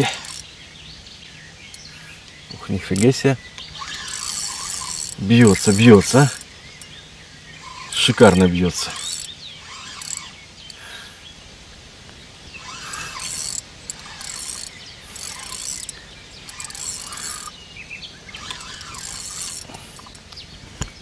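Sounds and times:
spinning reel being cranked: 0.0 - 0.5, 2.9 - 6.9, 7.6 - 10.8, 12.6 - 17.6, 18.3 - 20.3
birds chirping: 0.0 - 21.0.

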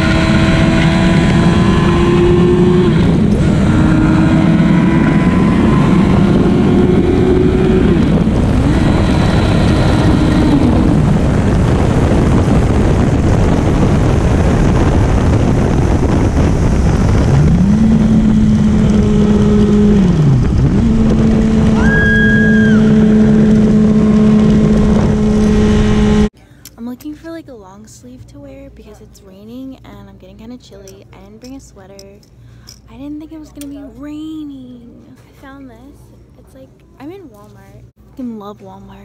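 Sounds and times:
wind rushing over rider: 0.0 - 26.3
motorcycle engine drone: 0.0 - 26.4.

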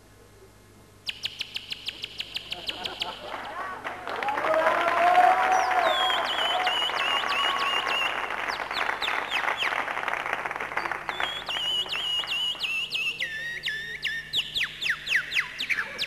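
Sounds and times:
applause: 3.2 - 12.9
man whistling birdsong: 5.6 - 9.8, 10.8 - 15.5.

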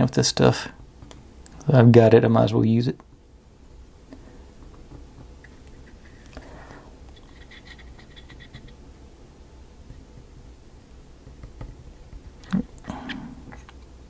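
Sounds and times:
low steady hum: 0.0 - 14.0
wooden pieces clicking and scratching: 7.1 - 8.8.

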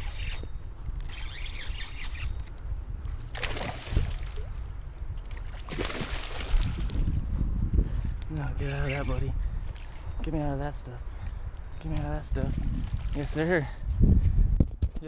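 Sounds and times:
fish splashing in water: 5.5 - 6.9.

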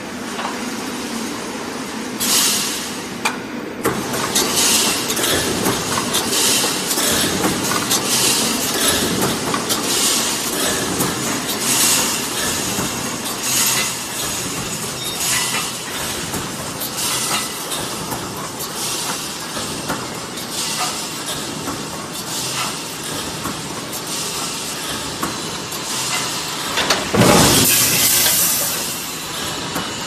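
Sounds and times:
welding machine metallic clanking: 3.8 - 30.0
welding hiss bursts: 27.5 - 29.7.

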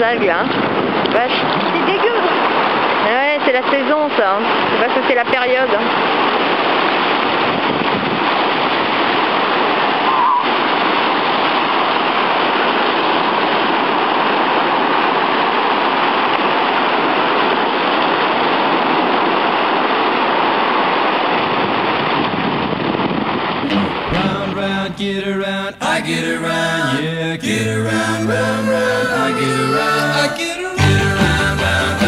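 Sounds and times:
sea surf breaking: 23.6 - 32.0.

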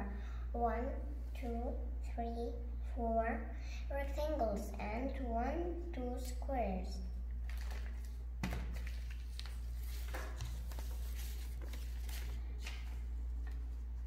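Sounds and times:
steady low hum: 0.0 - 14.0
paper rustling: 7.4 - 13.9.

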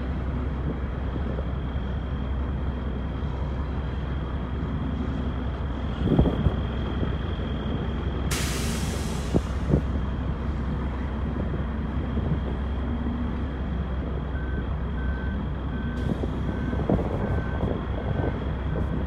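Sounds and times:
diesel engine rumbling: 0.0 - 19.0
reversing alarm beeps: 14.3 - 17.7.

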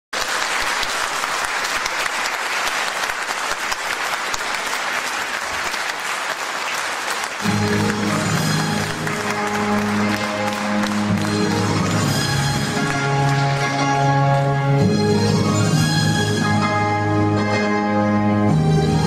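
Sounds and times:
audience applauding: 0.1 - 14.7.

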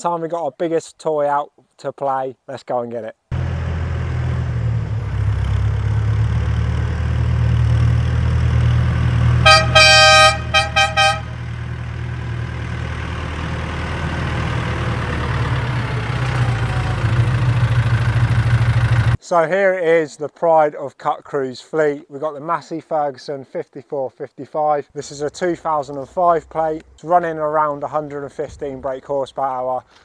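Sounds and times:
tractor diesel engine running: 3.4 - 19.2
tractor horn toots: 9.4 - 11.6.

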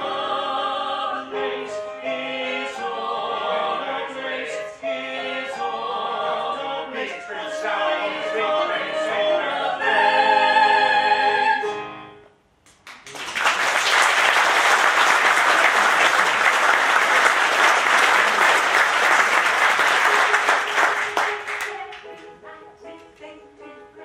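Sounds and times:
audience applause: 12.8 - 21.7.

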